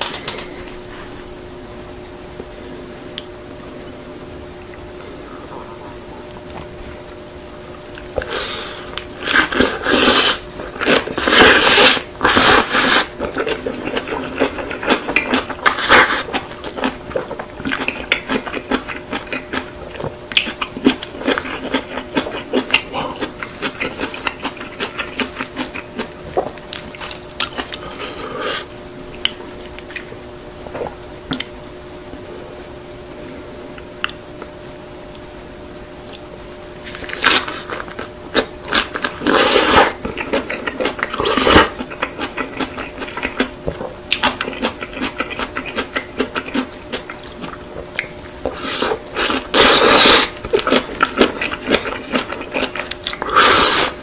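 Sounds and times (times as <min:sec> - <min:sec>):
rapid wet chewing: 0:07.9 - 0:28.6, 0:36.0 - 0:54.0
loud bites of food: 0:44.1 - 0:54.0.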